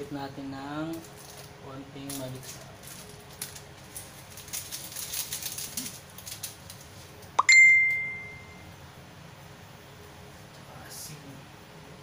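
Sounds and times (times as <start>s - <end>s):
packaging rustling: 2.1s - 7.1s.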